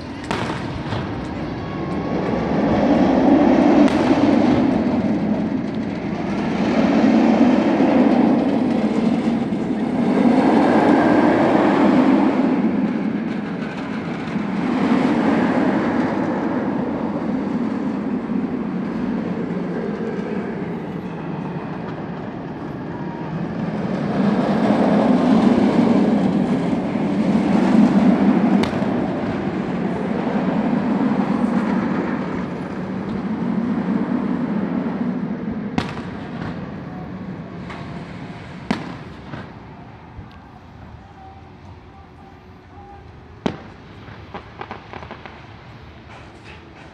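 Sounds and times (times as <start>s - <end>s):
roller coaster rumbling on track: 0.0s - 46.9s
firework bang: 0.2s - 1.2s, 28.5s - 29.3s, 35.8s - 36.6s, 38.6s - 39.6s, 43.4s - 45.4s.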